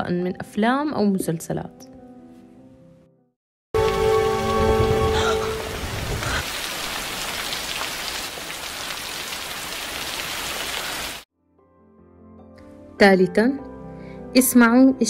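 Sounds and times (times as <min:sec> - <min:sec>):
heavy rain pouring: 0:03.8 - 0:11.2.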